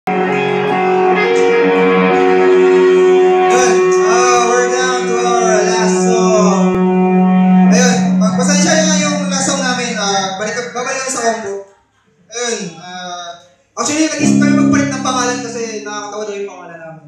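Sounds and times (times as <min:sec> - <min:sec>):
electric guitar sustained chords: 0:00.1 - 0:10.9, 0:14.2 - 0:16.0
wavering melody: 0:00.4 - 0:11.4, 0:14.2 - 0:16.1
cymbal wash: 0:05.6 - 0:11.0.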